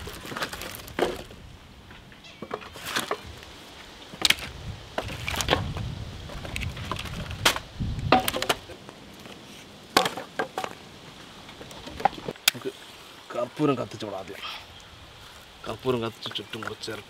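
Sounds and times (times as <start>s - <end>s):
firewood logs knocking together: 0.0s - 1.4s, 2.4s - 3.3s, 4.2s - 8.8s, 9.9s - 10.8s, 11.5s - 12.7s.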